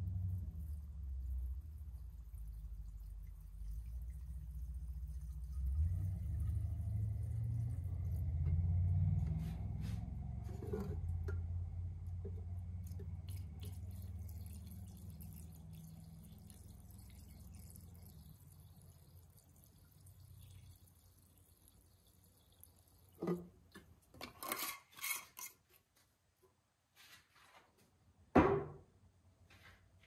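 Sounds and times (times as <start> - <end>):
liquid pouring and gurgling: 0.0 - 8.4, 12.2 - 24.8.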